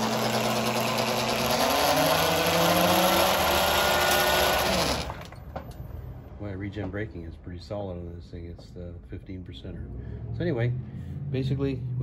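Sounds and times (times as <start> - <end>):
electric motor whine: 0.0 - 5.3.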